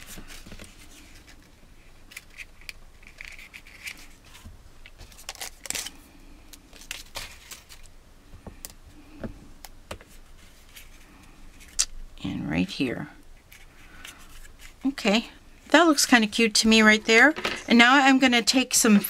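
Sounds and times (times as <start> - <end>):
paper rustling: 0.0 - 1.5, 2.1 - 6.0, 6.7 - 7.9.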